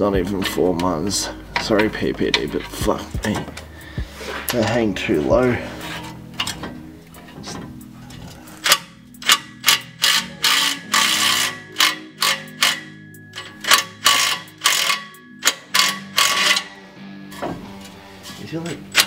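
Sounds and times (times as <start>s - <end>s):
socket ratchet clicking: 8.6s - 16.7s.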